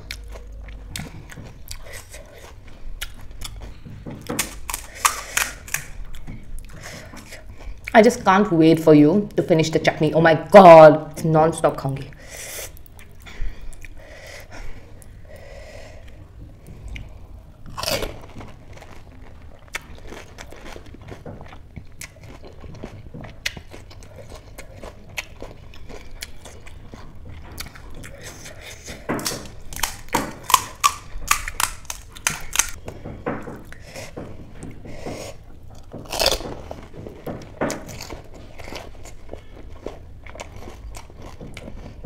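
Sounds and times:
person chewing crisp snacks: 0.0 - 8.0, 12.1 - 16.2, 16.8 - 32.8, 34.9 - 42.0.

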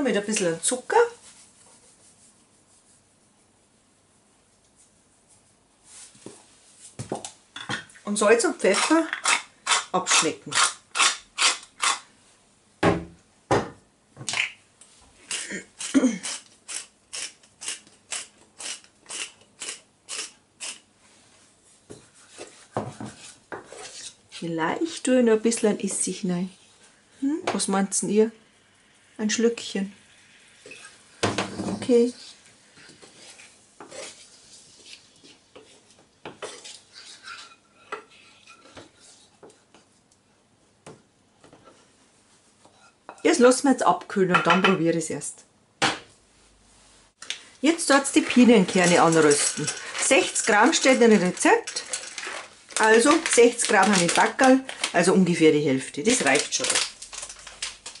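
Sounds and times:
pepper mill grinding: 8.7 - 12.0, 15.3 - 20.8, 47.8 - 55.1, 56.0 - 58.0
utensil scraping in frying pan: 22.1 - 24.4, 28.4 - 39.4, 42.7 - 43.4, 47.7 - 55.1.

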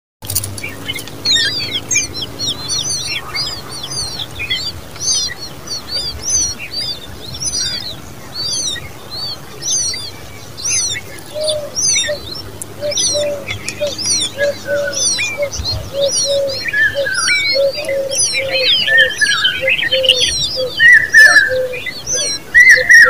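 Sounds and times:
nestlings chirping: 0.2 - 23.0.

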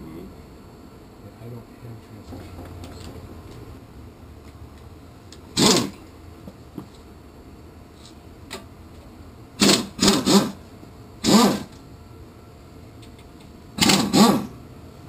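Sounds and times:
electric drill motor whining: 5.6 - 6.0, 9.6 - 11.8, 13.8 - 14.6.

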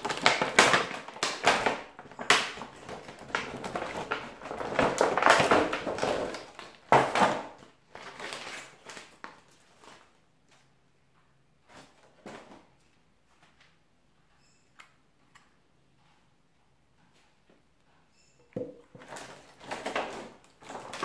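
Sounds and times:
sharp plastic crack: 0.0 - 9.4
plastic packaging crackling: 0.0 - 10.2, 19.0 - 21.0.

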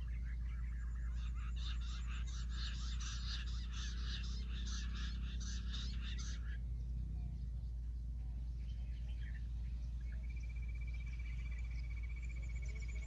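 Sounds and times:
quail chirping rapidly: 0.0 - 6.7
steady low rumble: 0.0 - 13.0.

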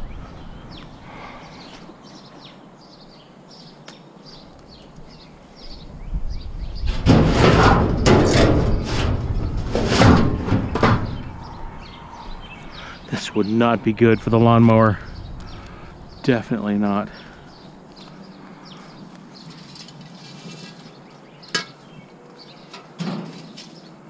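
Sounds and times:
small birds chirping: 0.0 - 6.9, 10.5 - 24.0
junk knocking and clattering: 6.9 - 11.4.

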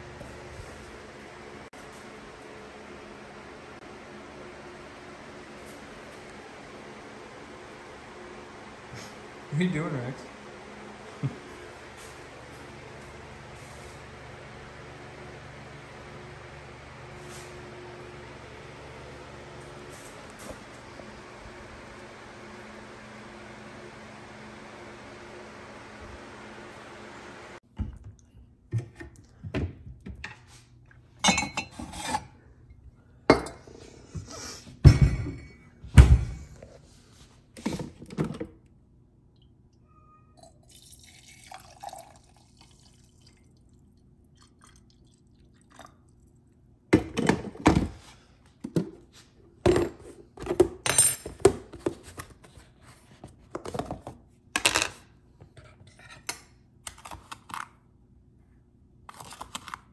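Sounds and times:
coffee pouring: 40.4 - 46.4.

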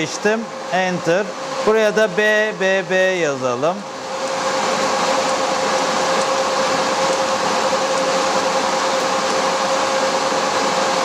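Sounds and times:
cooling fans rushing air: 0.0 - 11.0.

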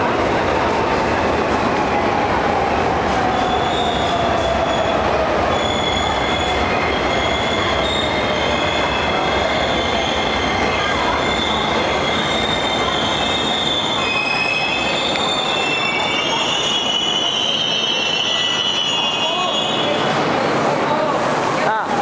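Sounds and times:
high wheel squeals: 5.5 - 20.1.

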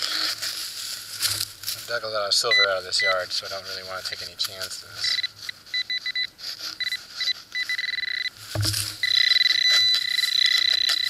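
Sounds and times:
metal detector beeps and tone: 2.3 - 11.0
dull thump: 8.5 - 9.0.

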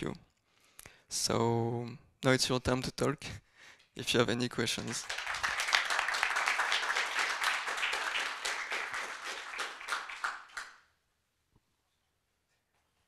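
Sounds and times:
audience applauding: 4.7 - 10.8.

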